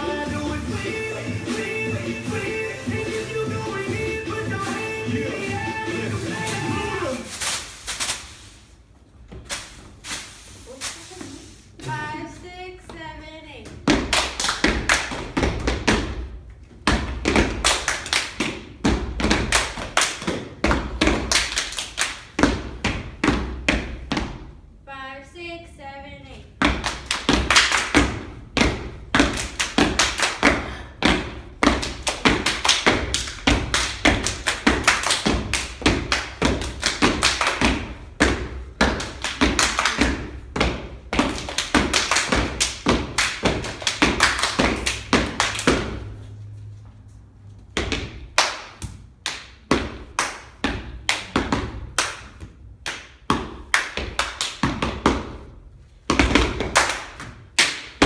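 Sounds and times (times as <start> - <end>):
hand claps and body slaps: 31.8 - 37.8, 41.2 - 45.9, 48.3 - 55.0, 56.3 - 58.0.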